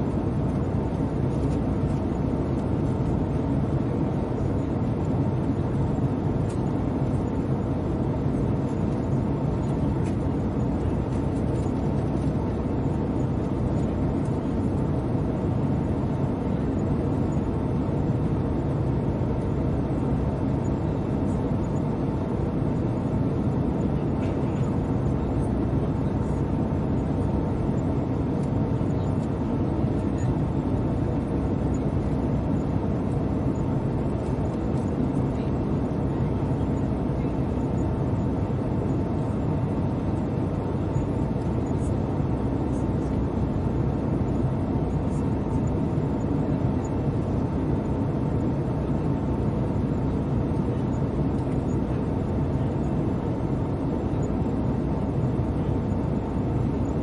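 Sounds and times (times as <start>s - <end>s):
airplane cabin rumble: 0.0s - 57.0s.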